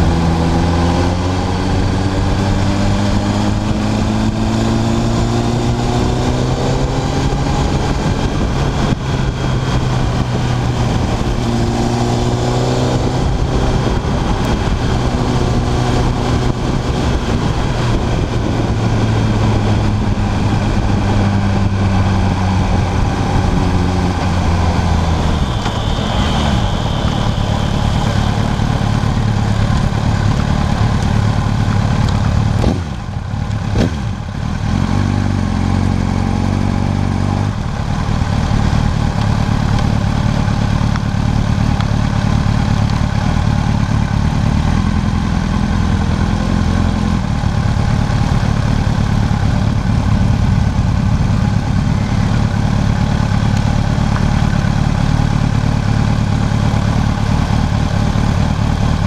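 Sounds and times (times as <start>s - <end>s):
wind noise on microphone: 0.0s - 30.1s
motorcycle engine revving: 0.0s - 59.0s.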